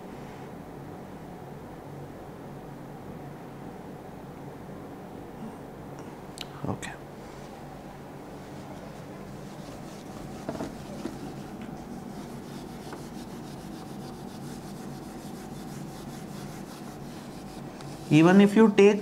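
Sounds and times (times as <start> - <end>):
eraser rubbing on whiteboard: 8.6 - 18.4.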